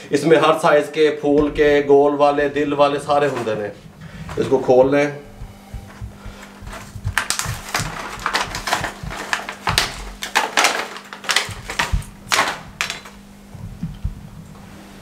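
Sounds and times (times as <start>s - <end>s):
plastic packaging crinkling and tearing: 6.6s - 13.2s.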